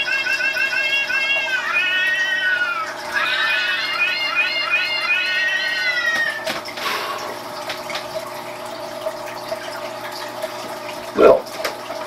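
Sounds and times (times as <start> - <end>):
cat mewing: 0.6 - 6.6.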